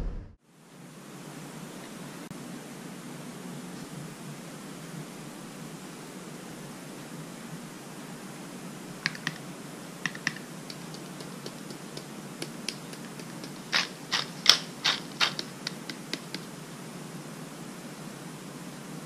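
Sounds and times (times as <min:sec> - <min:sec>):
spice jar clicking and rattling: 0:09.1 - 0:09.4, 0:10.1 - 0:16.4.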